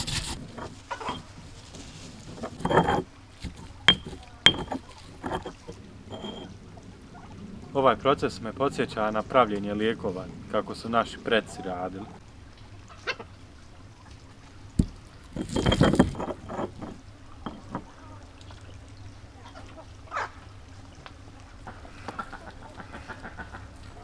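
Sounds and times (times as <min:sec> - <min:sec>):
pestle grinding in a mortar: 0:00.0 - 0:01.3, 0:02.3 - 0:06.5, 0:14.8 - 0:17.9
lemon rolled on wooden board: 0:00.0 - 0:06.5, 0:14.8 - 0:17.9.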